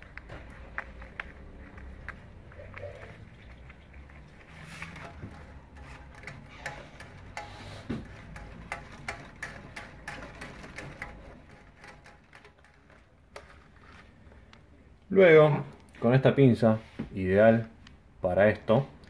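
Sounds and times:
binding coil clicking through paper: 0.0 - 14.7.

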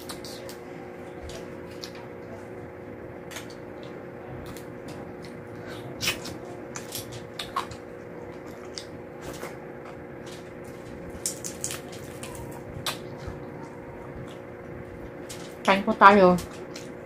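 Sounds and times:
faint electrical hum: 0.0 - 17.0
wet chewing: 3.2 - 15.7
lip smacks: 5.2 - 7.8, 11.2 - 14.5.

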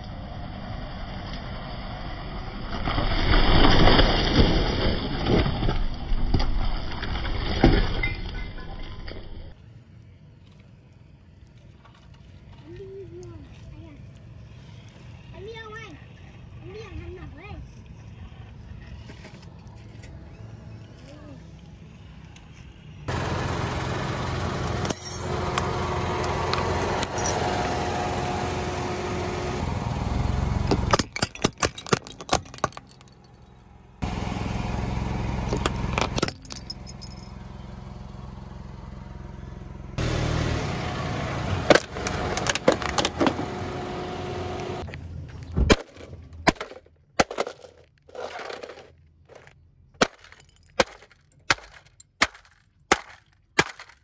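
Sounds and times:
car engine and tyre rumble: 0.0 - 54.0
sharp cracks and knocks: 45.5 - 48.6, 49.3 - 54.0
tyre crushing objects: 45.5 - 54.0.

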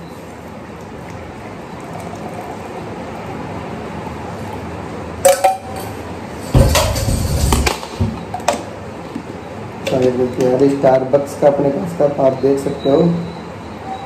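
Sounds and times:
tea pouring: 0.3 - 3.4
cup clinking and clattering: 5.3 - 8.6.

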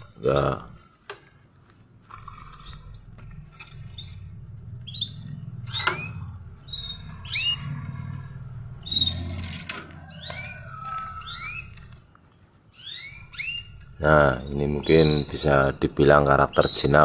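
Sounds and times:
canaries chirping: 0.0 - 0.8, 2.0 - 17.0
low steady rumble: 2.4 - 9.7.

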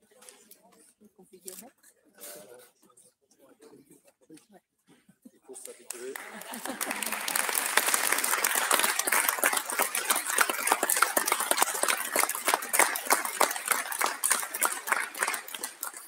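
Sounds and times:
crowd applause: 5.9 - 16.0.

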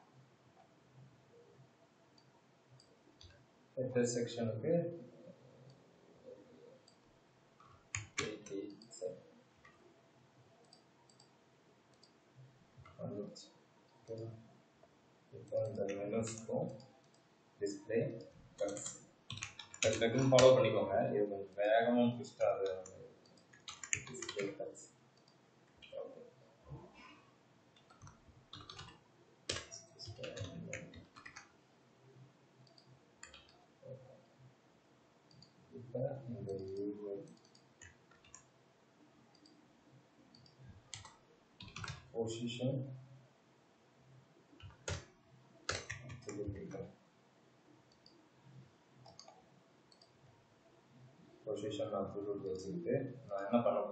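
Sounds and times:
keyboard and mouse clicks: 7.6 - 9.8, 15.5 - 17.2, 18.2 - 20.6, 22.6 - 24.6, 27.8 - 31.5, 32.6 - 33.6, 36.5 - 38.5, 40.3 - 42.1, 44.6 - 45.1, 45.7 - 46.8, 49.0 - 50.2.

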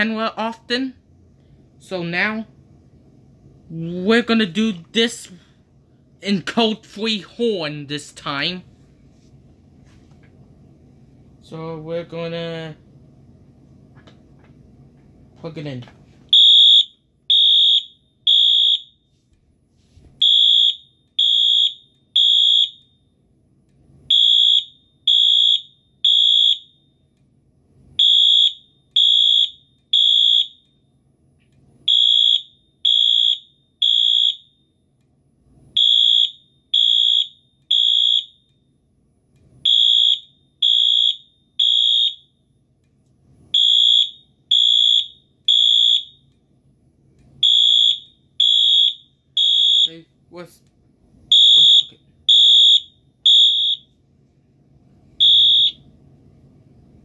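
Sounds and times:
fire alarm horn blasts: 16.3 - 19.1, 20.2 - 23.3, 24.1 - 27.2, 28.0 - 31.0, 31.8 - 35.0, 35.7 - 38.9, 39.6 - 42.6, 43.5 - 46.4, 47.4 - 50.1, 51.3 - 54.0, 55.2 - 55.9.

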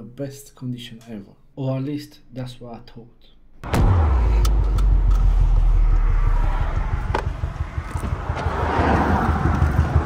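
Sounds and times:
car engine and road noise: 3.6 - 10.0.

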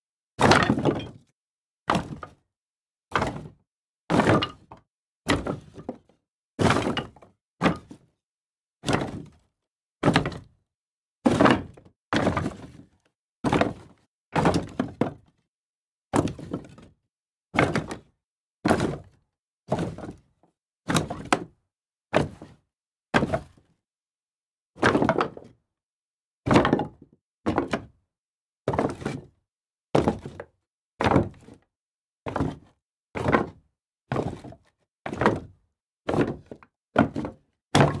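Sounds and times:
wood pieces landing with knocks: 0.4 - 1.2, 4.1 - 5.9, 8.8 - 9.3, 36.1 - 38.0.

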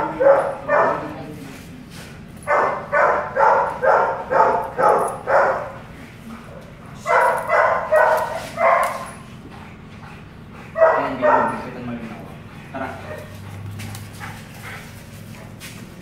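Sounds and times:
dog barking loudly: 0.0 - 1.2, 2.4 - 5.9, 7.0 - 9.2, 10.6 - 11.9, 12.7 - 13.6.

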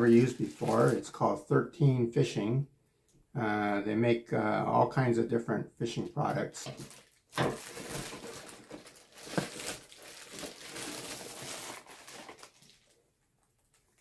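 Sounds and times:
packaging crinkling: 0.0 - 1.0, 6.6 - 14.0.

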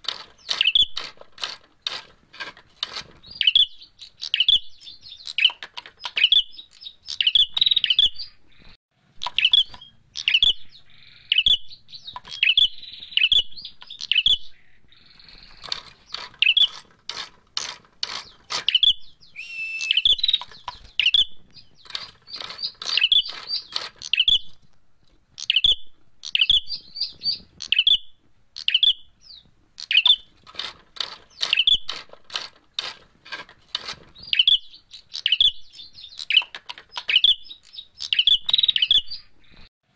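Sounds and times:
bird calling in sharp high chips: 0.0 - 2.1, 2.8 - 24.6, 25.4 - 33.0, 33.7 - 39.6
rapid clicking: 30.4 - 34.1.

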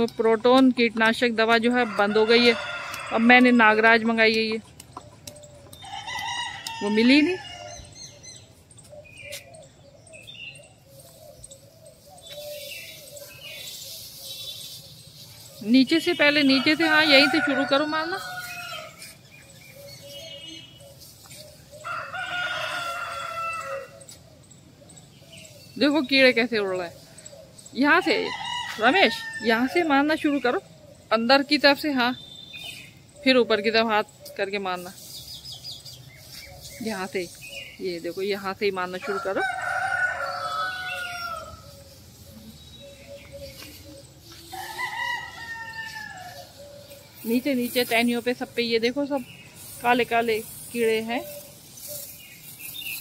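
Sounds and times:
rooster crowing: 1.8 - 3.4, 5.8 - 8.0, 16.5 - 19.0, 21.8 - 24.0, 39.0 - 42.0, 44.5 - 46.8.

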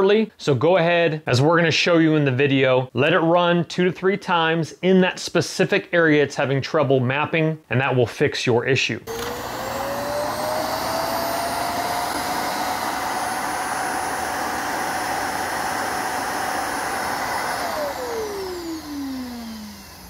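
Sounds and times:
suction motor whining: 9.1 - 20.0.

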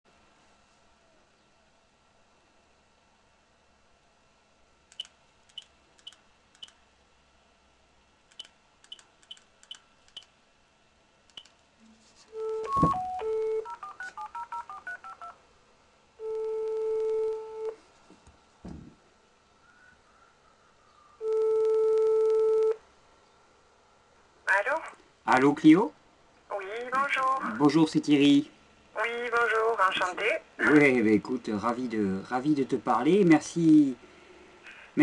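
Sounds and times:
phone line tones: 12.3 - 15.4, 16.2 - 17.8, 21.2 - 22.8
phone ringback tone: 12.3 - 15.4, 16.2 - 17.8, 21.2 - 22.8
touch-tone beeps: 12.4 - 15.3
low thump: 18.6 - 19.0.

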